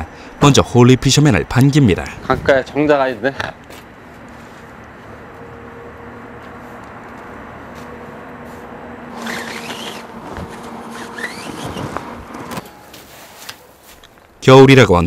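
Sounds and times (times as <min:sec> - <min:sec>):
squeaky rubbing and scraping: 0:09.1 - 0:13.6.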